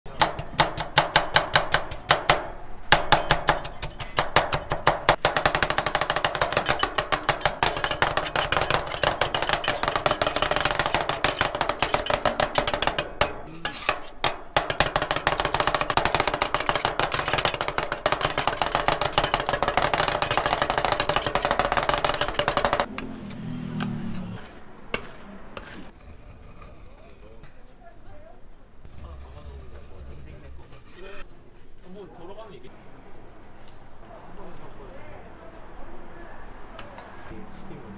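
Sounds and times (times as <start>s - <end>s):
metal spatulas chopping on plate: 0.1s - 26.0s
spatula scraping plate: 5.4s - 27.4s, 28.9s - 31.3s.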